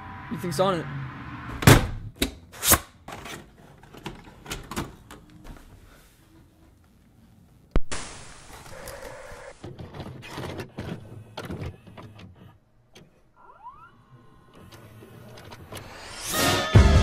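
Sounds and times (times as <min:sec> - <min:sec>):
static hiss: 0:07.8 - 0:09.6
music: 0:16.3 - 0:17.0.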